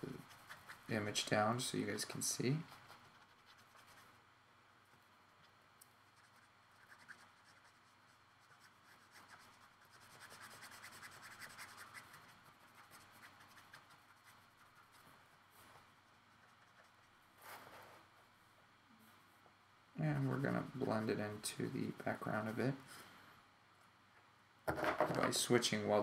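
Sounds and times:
marker scratching on paper: 0.0s - 1.0s, 2.6s - 4.2s, 6.1s - 15.0s, 16.1s - 17.8s.

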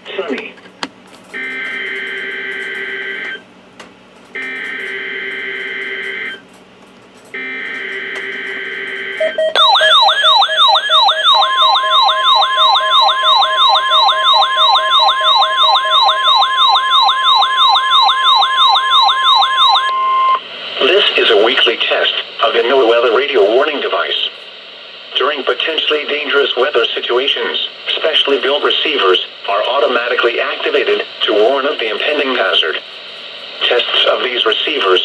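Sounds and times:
steady beep tone: 9.2s - 20.4s.

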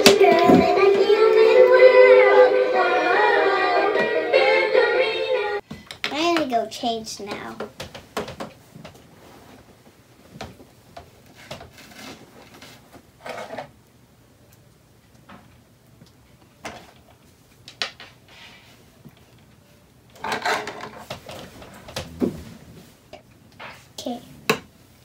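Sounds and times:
plastic toys clicking and clacking: 20.1s - 21.4s.

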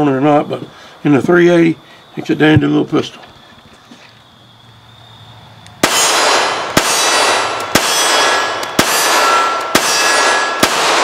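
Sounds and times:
pistol shots with ringing decay: 5.8s - 11.0s.

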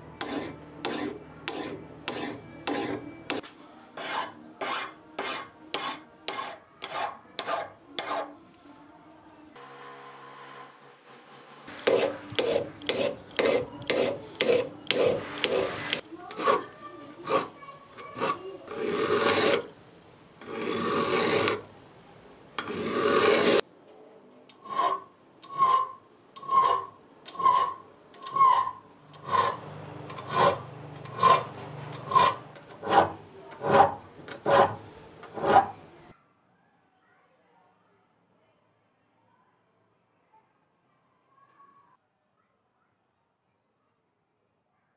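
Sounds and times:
file rasping on steel: 0.2s - 3.4s, 4.0s - 8.4s, 10.8s - 19.7s, 20.4s - 21.6s, 22.6s - 23.6s, 24.6s - 35.8s.

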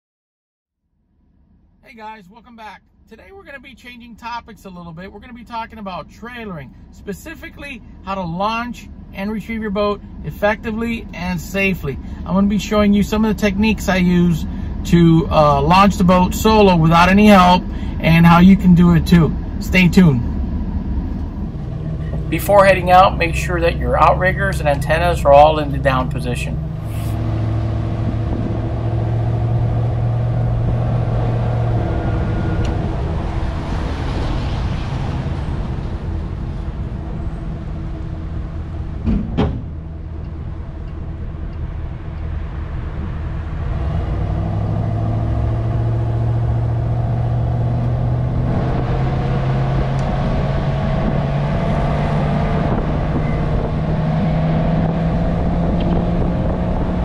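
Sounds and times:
vehicle engine and road noise: 0.8s - 57.0s
sharp knock: 39.0s - 39.8s.

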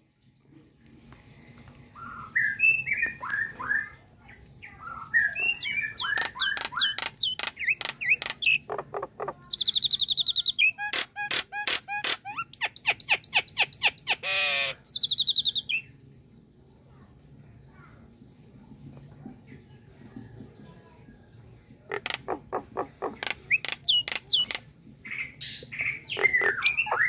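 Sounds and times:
bird whistles and chattering: 2.0s - 4.0s, 4.7s - 15.9s, 21.9s - 27.0s.

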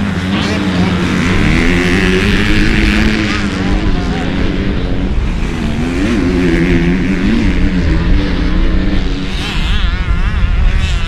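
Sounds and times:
high-pitched engine warbling: 0.0s - 11.0s
motocross bike engines revving: 0.0s - 11.0s.

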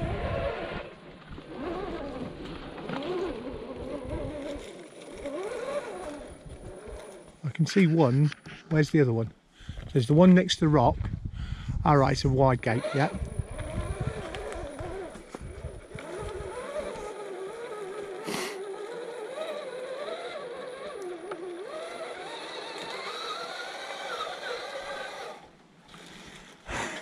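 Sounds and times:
electric motor whining: 0.0s - 7.5s, 12.6s - 25.5s.

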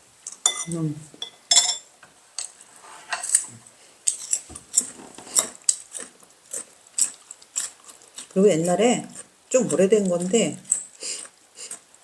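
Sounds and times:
forks clinking against plates: 0.4s - 2.5s.

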